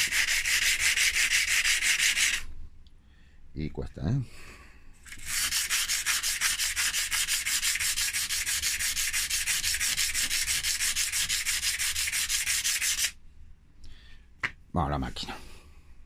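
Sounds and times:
emery cloth rubbing on steel: 0:00.0 - 0:02.5, 0:05.0 - 0:13.2.

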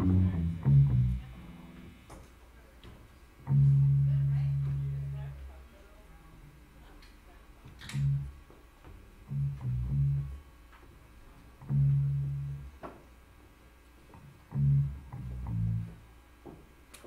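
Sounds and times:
electric guitar low notes: 0:00.0 - 0:02.1, 0:03.4 - 0:05.6, 0:07.8 - 0:10.5, 0:11.5 - 0:12.8, 0:14.1 - 0:16.2.

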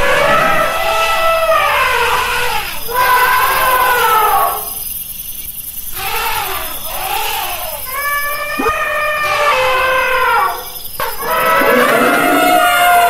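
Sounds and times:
elephant trumpeting: 0:00.0 - 0:02.6, 0:08.2 - 0:10.6, 0:11.2 - 0:13.0.

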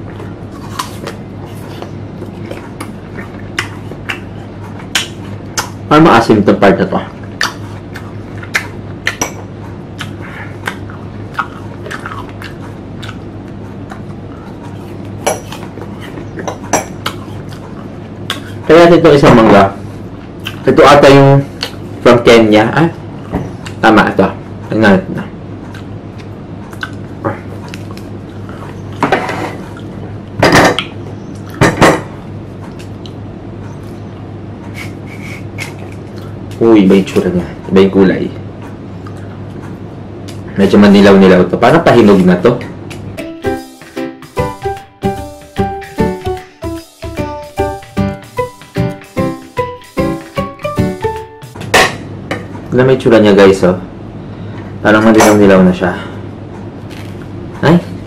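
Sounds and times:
steady low hum: 0:00.0 - 0:58.0
crunching firm fruit slices: 0:56.8 - 0:57.3.

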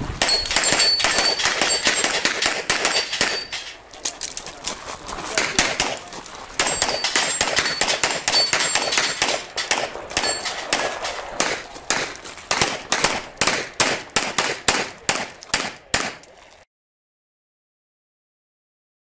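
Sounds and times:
rapid handgun shots: 0:00.0 - 0:03.8, 0:05.3 - 0:16.3
bullets ringing on steel targets: 0:00.0 - 0:04.3, 0:05.3 - 0:16.5.

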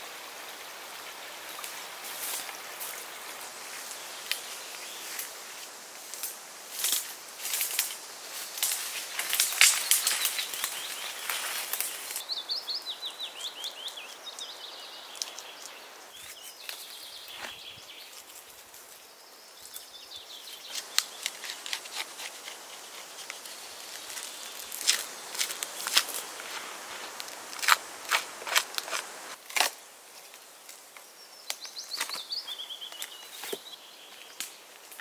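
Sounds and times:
bird chirping: 0:09.4 - 0:18.2.

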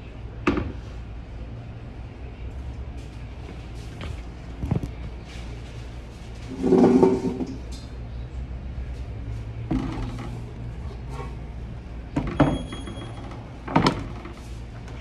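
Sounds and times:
metal chairs clattering onto tables: 0:06.5 - 0:07.5, 0:09.7 - 0:10.5, 0:12.2 - 0:14.4.

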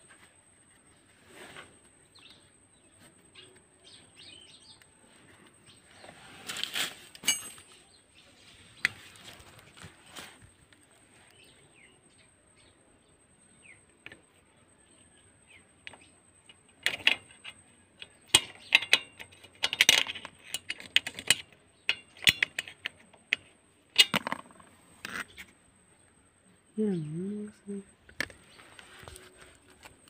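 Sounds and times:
metal tools clinking on engine: 0:07.1 - 0:07.9, 0:16.6 - 0:24.3.

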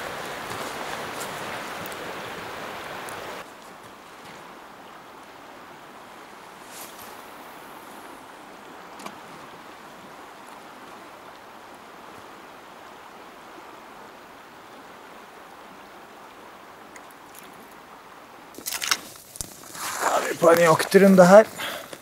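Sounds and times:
footsteps through forest undergrowth: 0:00.0 - 0:02.1, 0:06.6 - 0:07.3, 0:18.6 - 0:22.0
fast river water rushing: 0:00.0 - 0:22.0.

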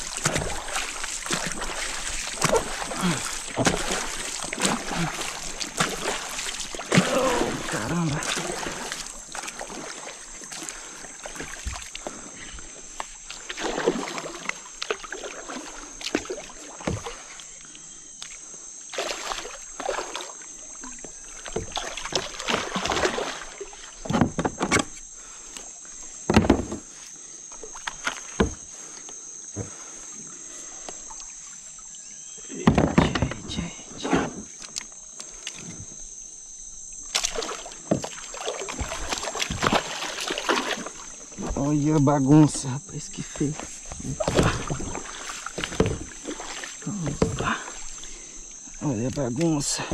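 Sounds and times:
fish thrashing at surface: 0:00.0 - 0:10.1, 0:37.2 - 0:41.6, 0:43.9 - 0:48.0
water sloshing against kayak: 0:00.0 - 0:49.9
knocks and rubs on hull: 0:26.3 - 0:27.0, 0:43.3 - 0:47.7.

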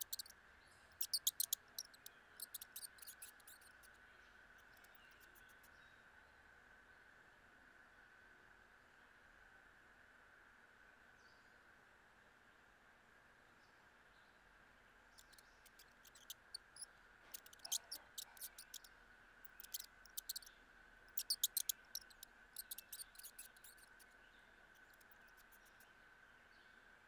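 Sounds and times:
mouse feeding clicks: 0:00.0 - 0:00.3, 0:01.0 - 0:03.9, 0:15.2 - 0:20.5, 0:21.1 - 0:24.1, 0:24.8 - 0:25.9.

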